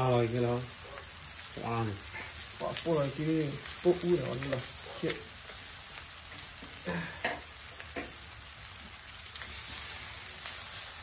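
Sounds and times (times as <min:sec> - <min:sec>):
food sizzling in a wok: 0:00.0 - 0:11.0.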